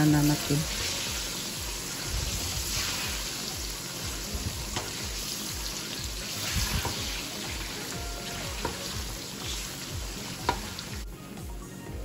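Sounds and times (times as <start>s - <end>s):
banana slices sizzling in oil: 0.0s - 11.1s
background music: 0.0s - 12.0s.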